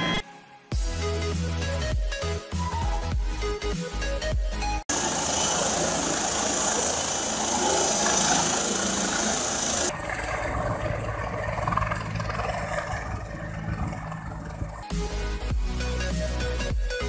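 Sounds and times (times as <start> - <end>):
helicopter turbine whine: 4.9 - 14.9
helicopter rotor beat: 4.9 - 15.5.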